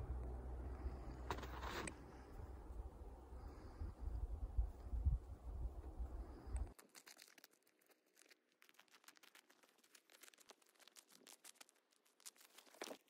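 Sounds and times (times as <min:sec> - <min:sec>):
low rumble on the microphone: 0:00.0 - 0:06.7.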